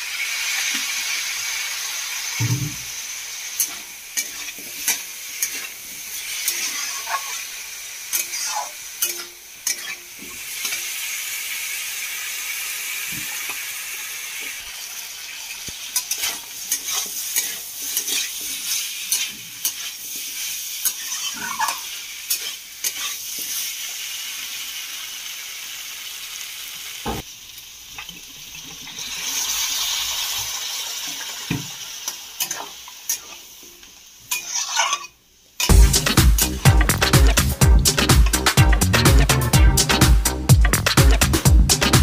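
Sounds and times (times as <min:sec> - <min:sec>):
frying sizzle: 0:00.0 - 0:42.0
metal spatula scraping a pan: 0:03.6 - 0:07.5, 0:08.1 - 0:10.9, 0:15.9 - 0:23.7, 0:34.3 - 0:35.7
loud music: 0:35.7 - 0:42.0.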